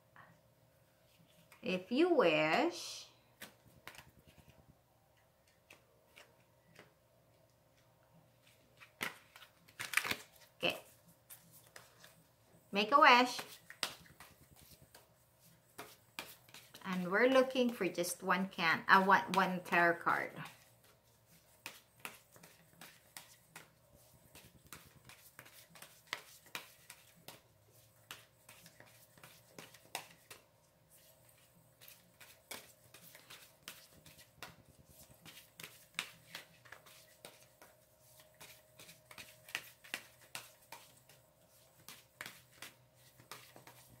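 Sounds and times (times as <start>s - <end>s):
cards being shuffled: 3.4s - 4.6s, 5.4s - 6.9s, 8.4s - 12.3s, 13.2s - 17.9s, 20.4s - 44.0s.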